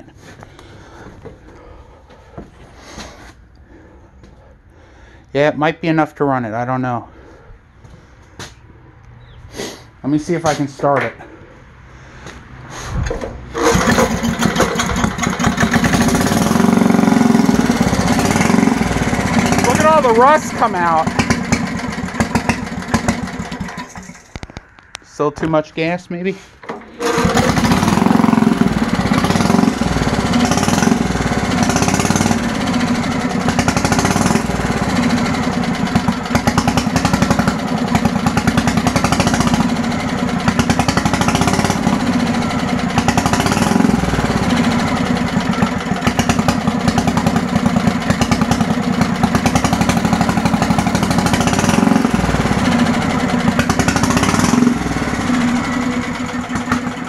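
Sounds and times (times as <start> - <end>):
single-cylinder engine running: 13.1 - 24.4, 26.6 - 57.0.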